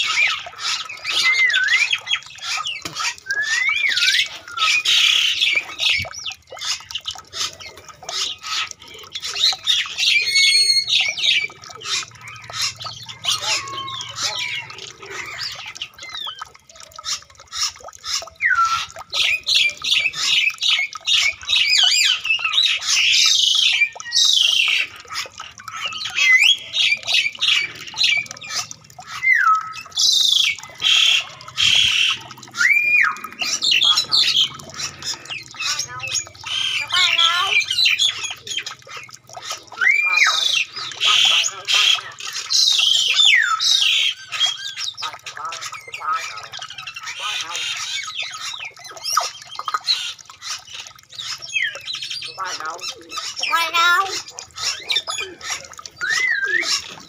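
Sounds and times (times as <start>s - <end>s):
birds chirping and whistling: 0.0s - 57.0s.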